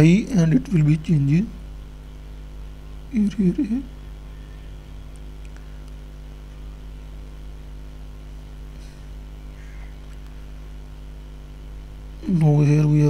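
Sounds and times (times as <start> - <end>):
low electrical hum: 0.0 - 13.0
faint clicks: 5.1 - 6.0, 10.0 - 10.4.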